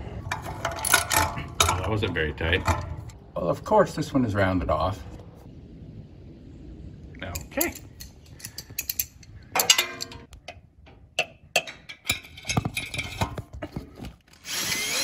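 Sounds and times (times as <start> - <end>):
hand tools clicking on metal: 7.3 - 10.6
metallic ringing: 8.4 - 10.3.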